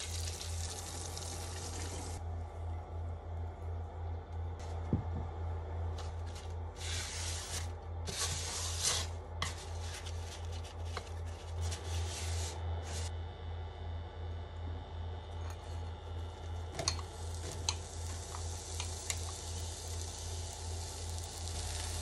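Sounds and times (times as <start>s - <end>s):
paper rubbing inside a pot: 6.0s - 13.1s.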